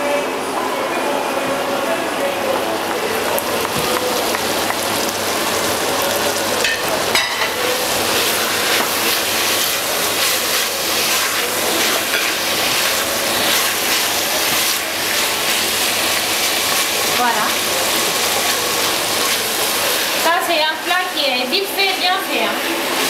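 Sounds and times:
vegetables sizzling in a pot: 0:02.7 - 0:23.0
wooden spoon stirring: 0:07.8 - 0:17.6.

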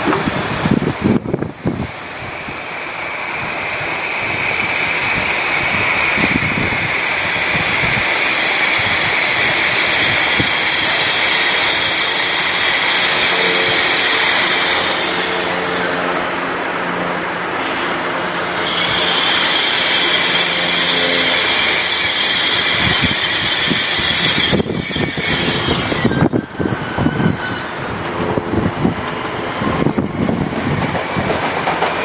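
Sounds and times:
train traction equipment humming: 0:00.0 - 0:32.0
train wheels rolling on rails: 0:00.0 - 0:32.0
high squeal: 0:04.1 - 0:16.3, 0:17.6 - 0:27.9.

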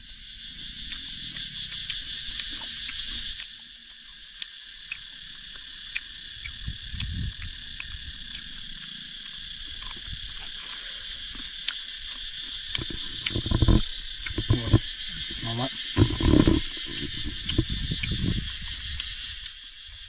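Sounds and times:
insect chorus chirring: 0:00.0 - 0:20.0
low thumps: 0:12.8 - 0:18.6.

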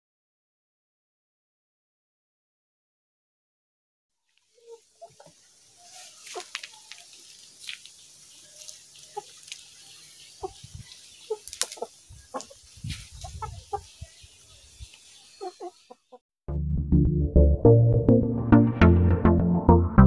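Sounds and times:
beaks tapping on ground: 0:04.4 - 0:16.2
chickens clucking: 0:04.5 - 0:16.2.

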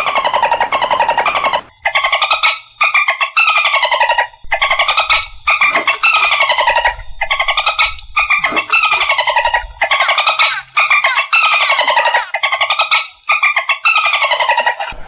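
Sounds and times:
dolphin squeaky pulsed calls: 0:08.2 - 0:13.1.

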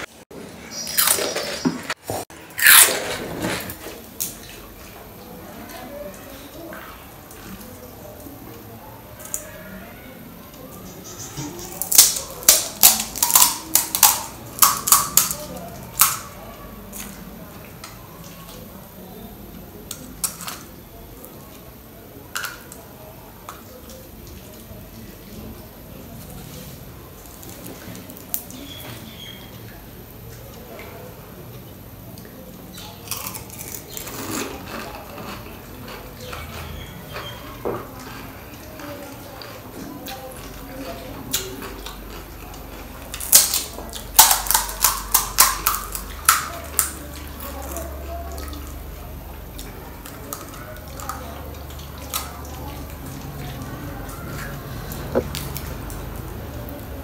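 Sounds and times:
crisp shell cracking: 0:11.7 - 0:15.4, 0:43.2 - 0:47.0.

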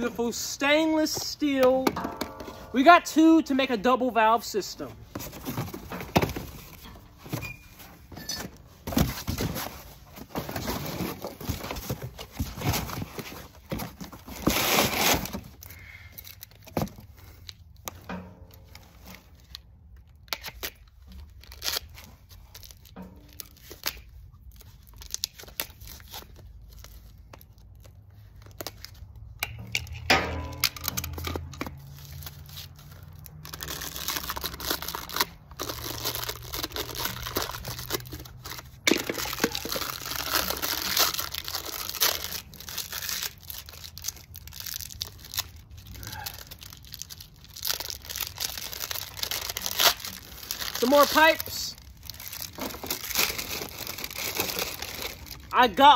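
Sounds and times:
paper tearing and crinkling: 0:09.0 - 0:15.6, 0:30.9 - 0:55.5.

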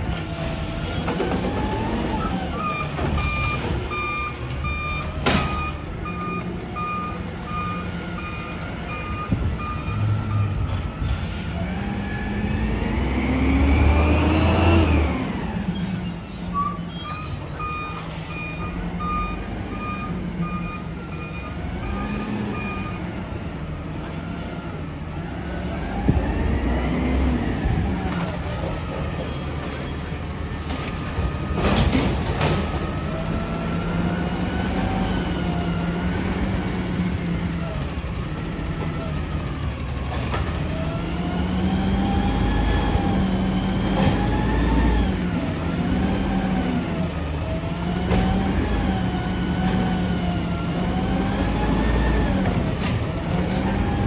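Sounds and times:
truck reversing alarm beeps: 0:01.8 - 0:11.6, 0:15.2 - 0:24.3
truck engine revving: 0:11.6 - 0:15.4, 0:31.6 - 0:54.0.

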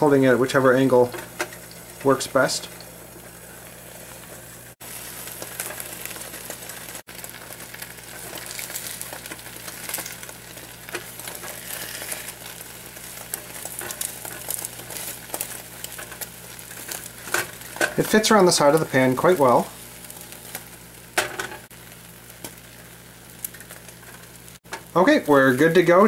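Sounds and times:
eggs sizzling in a pan: 0:00.0 - 0:26.0
spatula scraping a pan: 0:10.9 - 0:17.8.

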